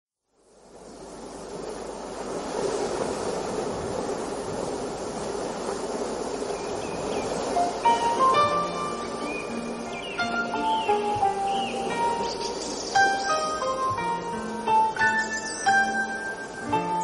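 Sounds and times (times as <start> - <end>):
ocean surf washing on shore: 0.4 - 17.0.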